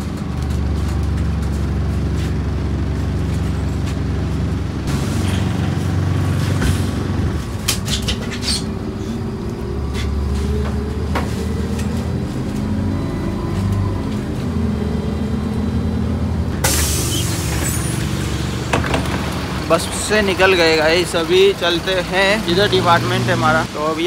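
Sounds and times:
bus engine droning: 0.0 - 24.0
compressed air hiss: 16.6 - 18.4.

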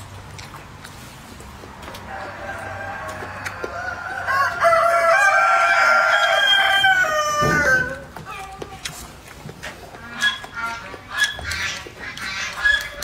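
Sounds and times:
rooster crowing: 2.1 - 8.1.

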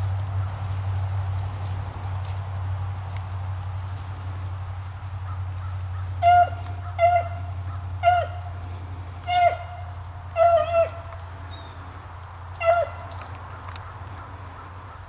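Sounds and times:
steady low hum: 0.0 - 15.0
dog baying yelps: 5.3 - 8.4, 9.3 - 11.7, 12.6 - 13.2.

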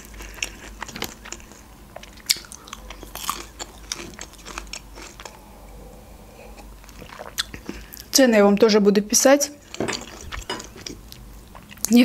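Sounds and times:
crunchy chewing: 0.0 - 5.7, 9.6 - 12.0.

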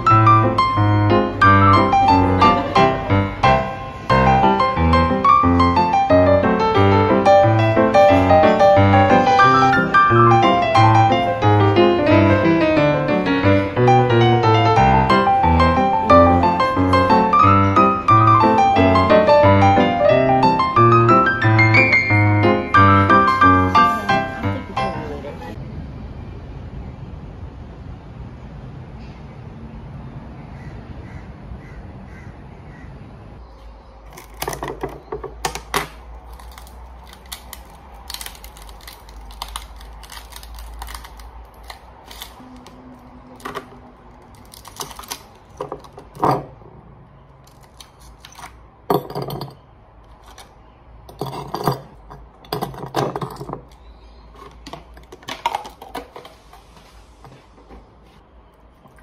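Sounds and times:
ice cubes clattering into glass jar: 51.1 - 53.6.

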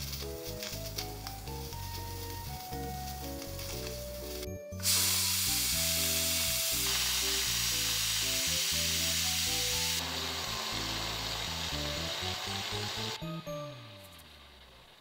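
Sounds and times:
steam hissing from pressure cooker: 4.1 - 13.2.

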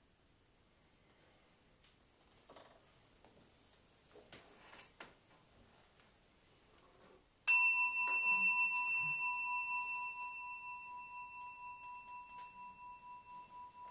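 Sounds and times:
bowl bell ringing: 7.4 - 13.9.

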